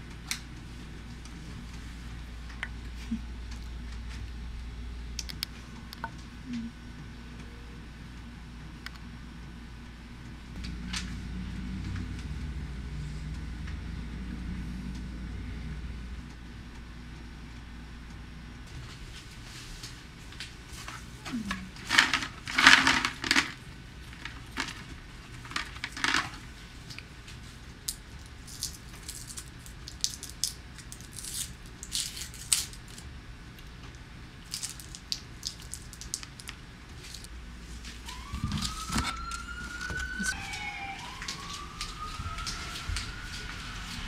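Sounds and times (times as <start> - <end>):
objects being handled: 20.7 - 27.0, 34.5 - 43.6
rising squeaky tones: 38.1 - 44.0.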